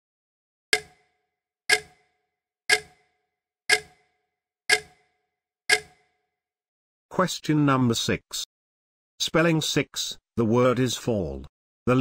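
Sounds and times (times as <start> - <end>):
clock ticking with short ring: 0.8 - 6.2.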